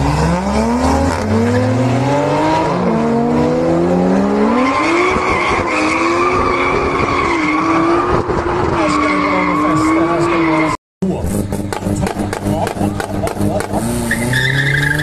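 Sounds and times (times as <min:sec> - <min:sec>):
car engines accelerating hard: 0:00.0 - 0:15.0.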